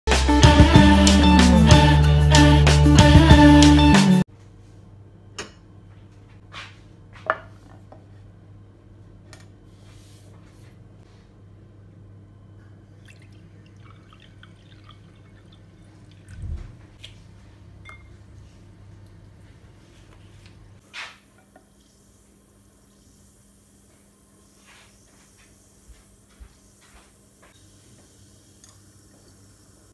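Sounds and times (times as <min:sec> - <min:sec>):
low hum: 0:11.9 - 0:19.8.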